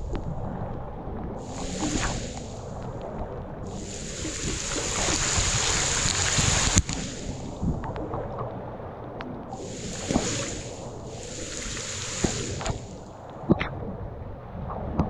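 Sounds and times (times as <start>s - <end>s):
rushing hiss: 1.4s - 2.7s, 3.7s - 7.7s, 9.6s - 13.1s
water sloshing and splashing: 1.4s - 2.8s, 3.7s - 7.8s, 9.6s - 13.2s.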